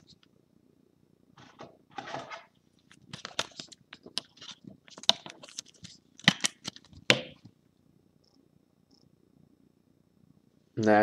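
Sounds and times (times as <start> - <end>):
plastic rustling and scraping: 1.4 - 6.0.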